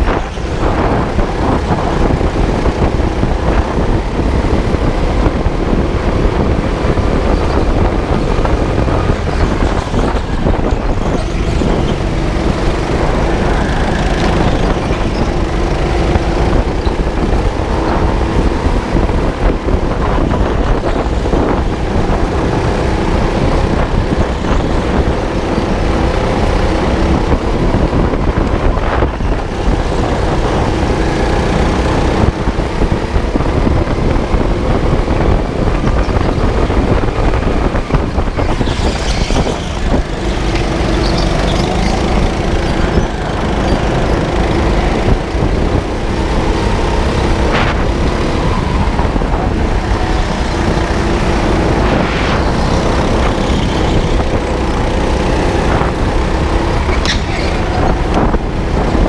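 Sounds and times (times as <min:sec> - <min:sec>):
go-kart engine racing: 0:00.0 - 0:59.0.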